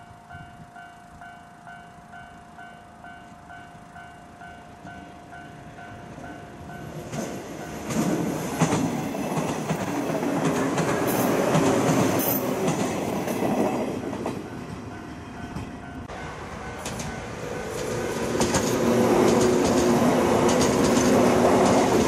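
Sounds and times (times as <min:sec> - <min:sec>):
train passing: 0:00.0 - 0:22.0
wheels clattering over rail joints: 0:16.7 - 0:22.0.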